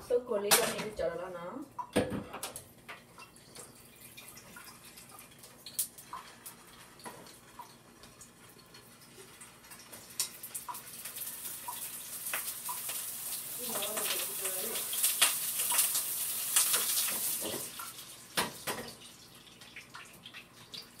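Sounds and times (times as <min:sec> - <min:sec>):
frying hiss: 0:02.8 - 0:21.0.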